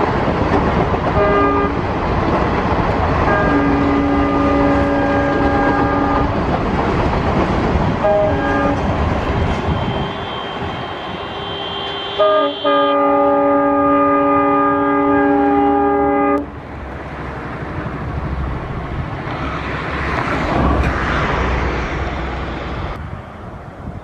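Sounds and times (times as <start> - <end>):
train coaches rumbling on track: 0.0 - 24.0
locomotive horn: 1.2 - 1.8, 3.2 - 6.4, 8.0 - 16.5.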